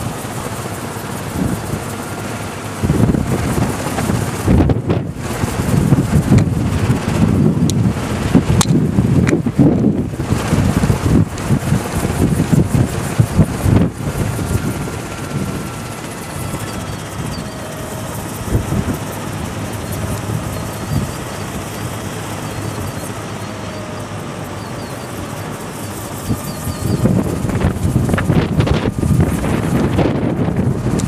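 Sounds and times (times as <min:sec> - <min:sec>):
wind buffeting microphone: 0:00.0 - 0:31.0
wind turbine spinning: 0:00.0 - 0:31.0.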